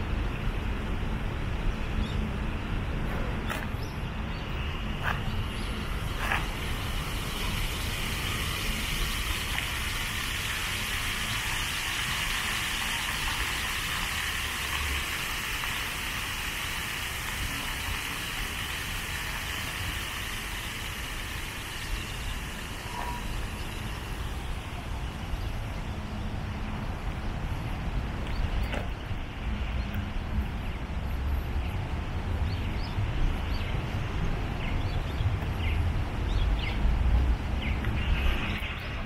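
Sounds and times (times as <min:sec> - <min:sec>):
low city rumble: 0:00.0 - 0:39.0
high-pitched hiss: 0:04.5 - 0:25.8.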